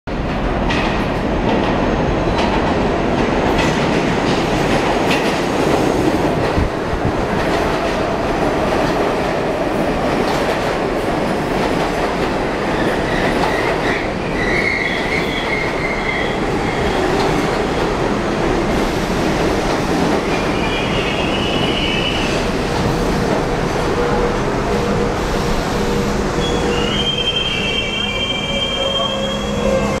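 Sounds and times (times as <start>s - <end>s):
subway train wheels rumbling: 0.1s - 30.0s
wheel and brake squeals: 26.4s - 30.0s.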